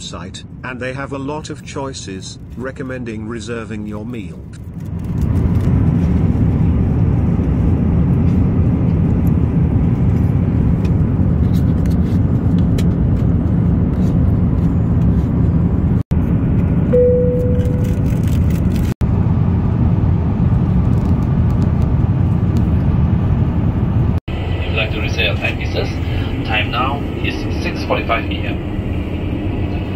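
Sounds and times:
airplane cabin noise: 0.0s - 29.9s
brief single tone: 16.9s - 18.0s.

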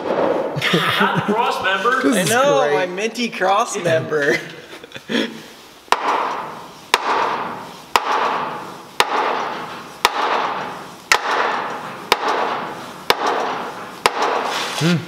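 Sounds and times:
mallet knocking on metal: 5.9s - 14.5s.

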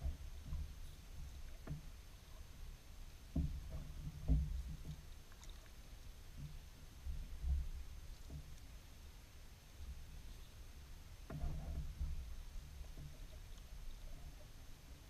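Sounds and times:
paddle pulling through water: 0.0s - 15.0s
dull low knocks: 3.2s - 5.1s, 11.2s - 14.5s.

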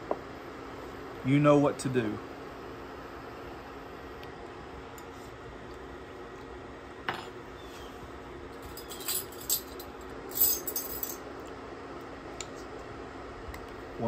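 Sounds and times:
metal spoons jangling: 8.6s - 11.2s.

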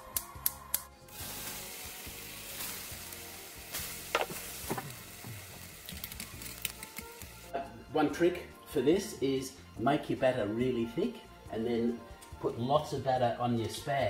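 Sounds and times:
food deep-frying in oil: 1.1s - 7.5s.

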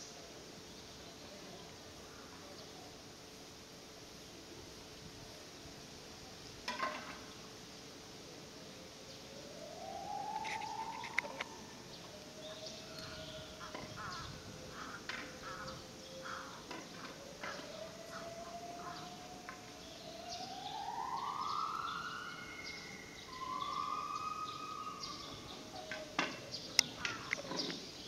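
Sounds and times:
siren wailing: 9.3s - 27.4s.

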